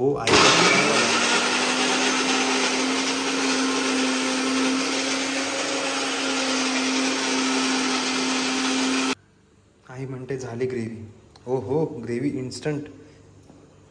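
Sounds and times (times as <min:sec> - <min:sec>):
mixer grinder motor whirring: 0:00.2 - 0:09.2.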